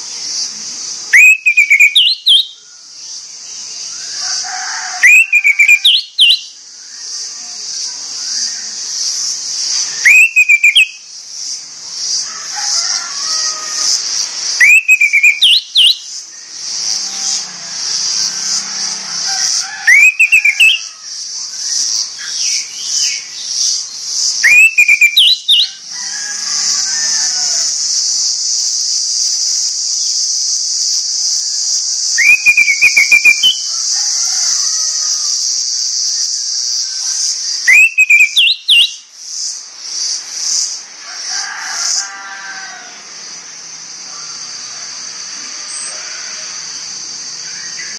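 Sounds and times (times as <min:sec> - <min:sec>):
bird rising whistles: 0:01.1 - 0:02.6, 0:05.0 - 0:06.5, 0:10.0 - 0:11.0, 0:14.6 - 0:16.0, 0:19.8 - 0:20.9, 0:24.4 - 0:25.8, 0:32.1 - 0:33.7, 0:37.6 - 0:39.0.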